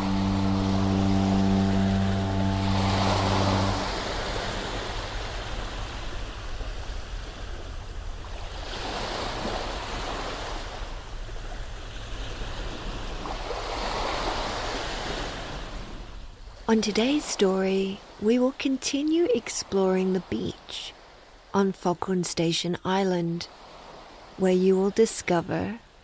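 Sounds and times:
foghorn low tone: 0.0s - 18.1s
ocean waves washing ashore: 0.0s - 26.0s.

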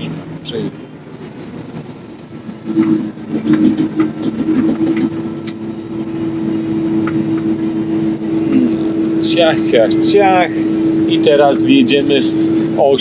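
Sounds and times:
harvester engine hum: 0.0s - 13.0s.

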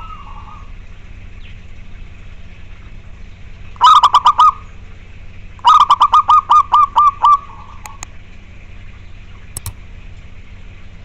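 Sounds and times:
dove cooing: 3.8s - 4.6s, 5.6s - 8.0s.

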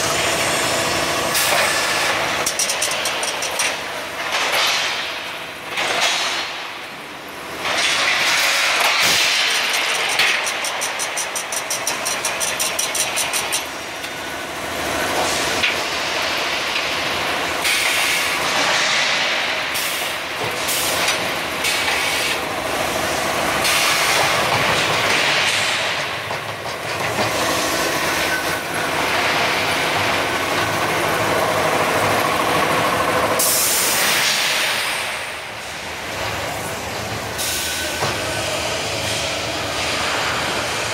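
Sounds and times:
steel bars clattering on conveyors: 2.4s - 5.1s, 7.7s - 13.8s.

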